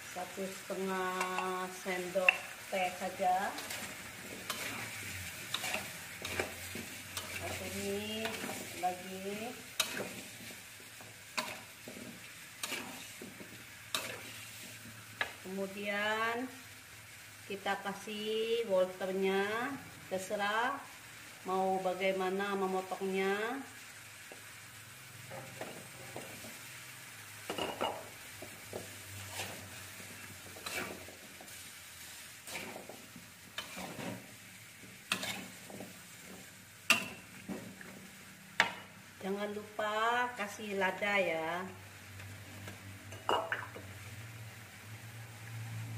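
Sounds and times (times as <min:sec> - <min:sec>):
food sizzling in a wok: 0:00.0 - 0:45.9
metal spatula scraping a wok: 0:02.2 - 0:10.6, 0:11.3 - 0:14.8, 0:28.8 - 0:37.4.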